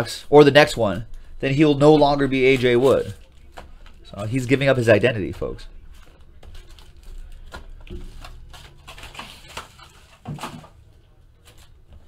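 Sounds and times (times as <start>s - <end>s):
foil packs and cardboard handled: 2.2s - 4.6s, 5.2s - 10.8s.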